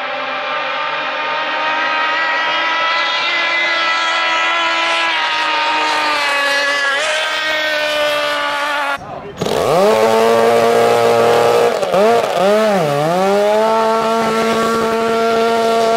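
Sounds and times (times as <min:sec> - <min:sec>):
racing outboard motor speeding past: 0:00.0 - 0:15.9.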